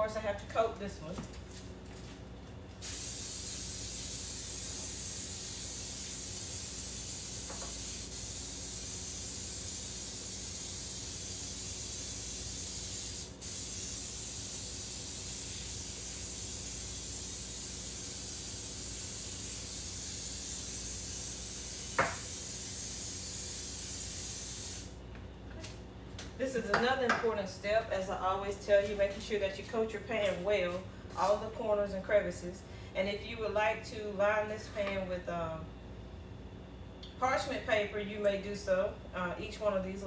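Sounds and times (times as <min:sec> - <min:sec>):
aerosol spray hissing: 0:02.8 - 0:25.0.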